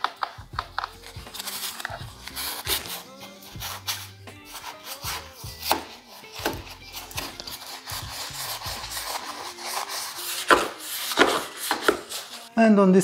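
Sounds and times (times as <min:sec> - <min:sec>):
paintbrush bristles scrubbing: 0:00.7 - 0:12.5.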